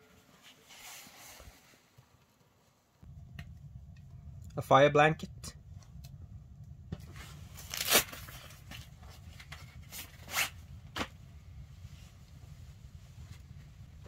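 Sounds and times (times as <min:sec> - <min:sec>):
low steady hum: 0:02.3 - 0:14.0
rustling crackles: 0:05.6 - 0:14.0.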